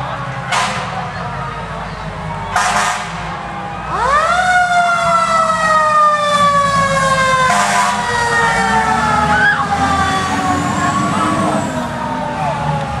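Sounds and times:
fire engine siren: 0.0 - 13.0
horn blast: 2.5 - 3.4, 7.5 - 8.1.

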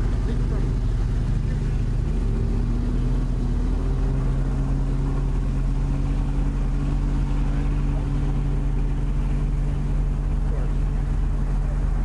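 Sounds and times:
car engine hum: 0.0 - 12.0
low road rumble: 0.0 - 12.0.

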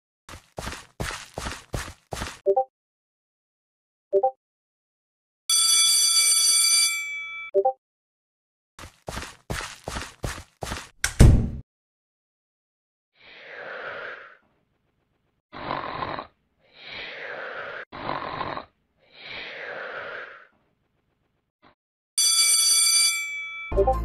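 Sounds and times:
breathy snore-like sounds: 13.2 - 14.5, 15.5 - 20.6.

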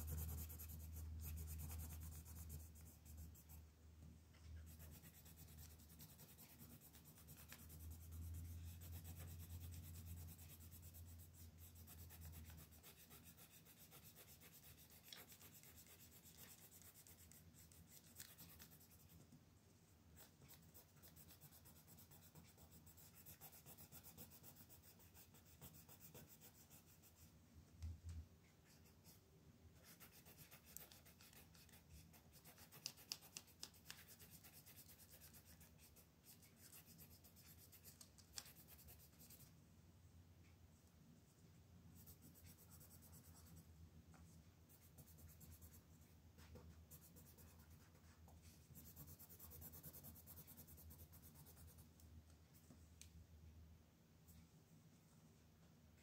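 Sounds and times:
pencil scratching on paper: 0.0 - 3.6, 4.5 - 19.2, 20.2 - 27.3, 29.8 - 39.5, 42.0 - 43.7, 44.7 - 51.8.

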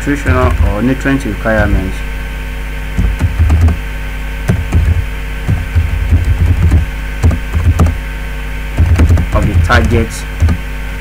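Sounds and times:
electrical mains hum: 0.0 - 11.0
keyboard typing: 3.0 - 3.8, 4.5 - 8.0, 8.8 - 10.6.

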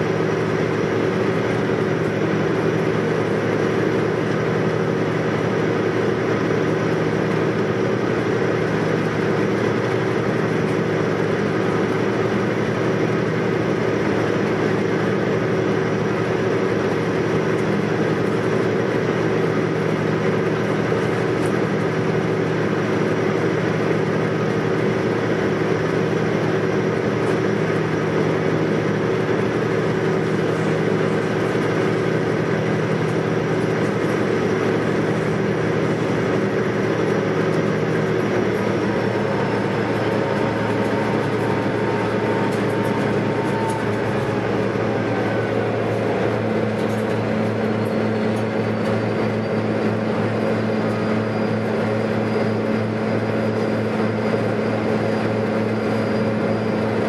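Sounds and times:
ferry engine drone: 0.0 - 57.0
low hum: 33.1 - 50.9
faint rising whine: 36.2 - 49.0.

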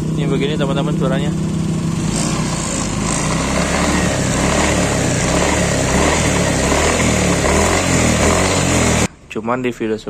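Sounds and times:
scooter engine running: 0.0 - 9.1.

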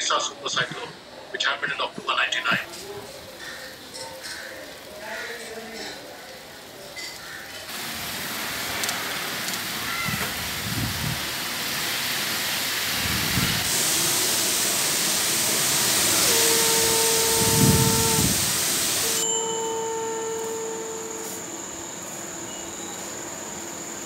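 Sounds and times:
wind and rain rushing: 7.7 - 19.2
gusts buffeting microphone: 9.8 - 11.5, 12.8 - 13.8, 16.3 - 18.8.

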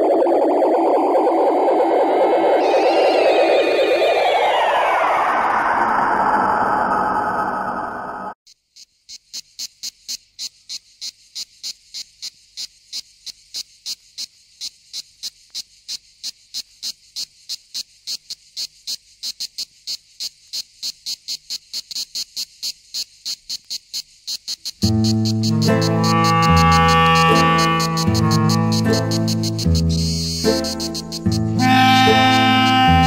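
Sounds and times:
cricket chirping: 8.5 - 33.0.

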